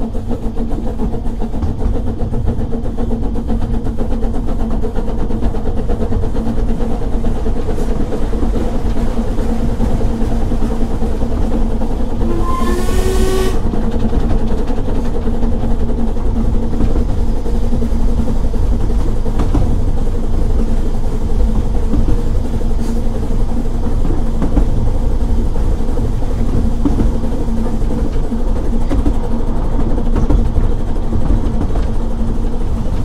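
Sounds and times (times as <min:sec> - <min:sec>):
train wheels rumbling: 0:00.0 - 0:33.0
steam locomotive whistle: 0:12.2 - 0:13.7.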